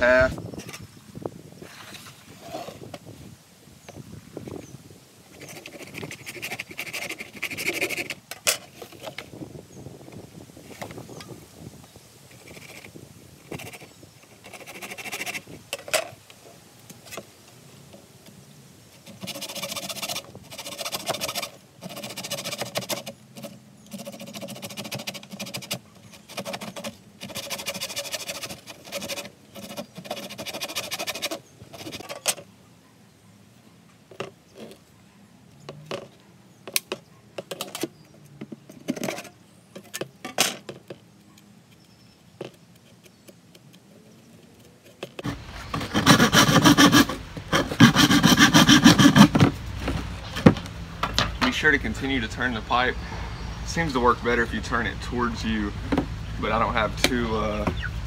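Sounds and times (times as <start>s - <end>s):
hand saw cutting plastic pipe: 5.4s - 8.2s, 14.4s - 16.0s, 19.0s - 32.4s, 45.1s - 49.6s.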